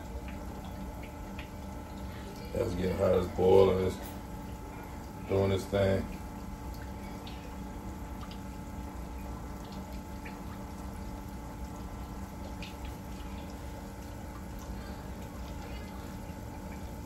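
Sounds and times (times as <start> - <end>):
bubbling sizzle of frying oil: 0.0 - 17.0.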